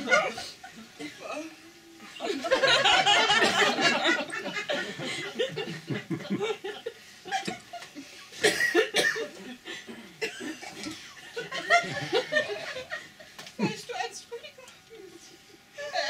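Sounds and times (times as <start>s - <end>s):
audience laughing: 2.1s - 8.4s, 10.4s - 13.8s.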